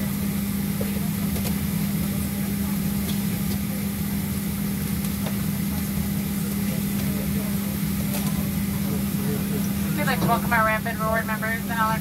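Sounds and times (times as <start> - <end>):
airplane cabin air system hum: 0.0 - 12.0.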